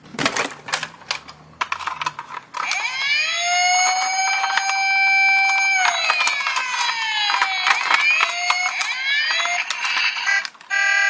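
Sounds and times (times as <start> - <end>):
plastic toy cars clicking together: 0.0 - 10.9
toy police siren wailing: 2.6 - 11.0.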